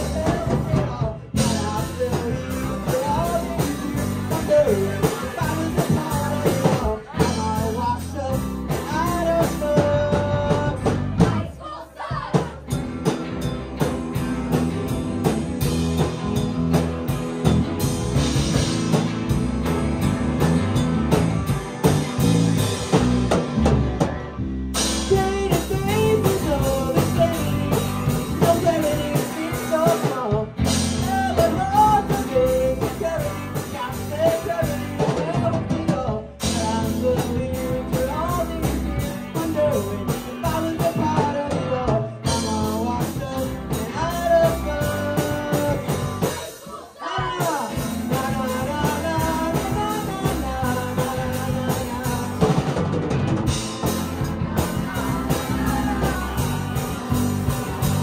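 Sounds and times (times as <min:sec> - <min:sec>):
person singing lead vocal: 0:00.0 - 0:12.8, 0:24.8 - 0:58.0
rock band playing: 0:00.0 - 0:58.0.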